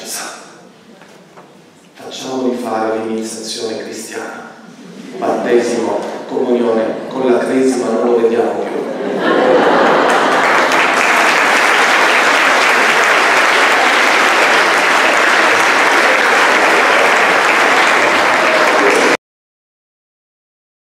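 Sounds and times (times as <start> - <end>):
audience applauding: 9.3 - 19.2.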